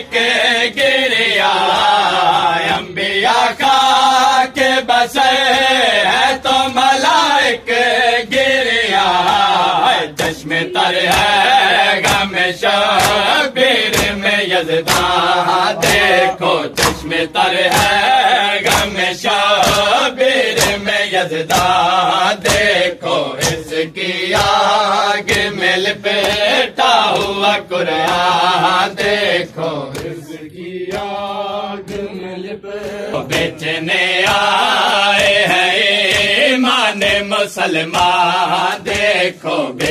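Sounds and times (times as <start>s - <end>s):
man chanting a lament: 0.0s - 39.9s
hands slapping chest: 9.0s - 32.2s, 32.8s - 39.9s.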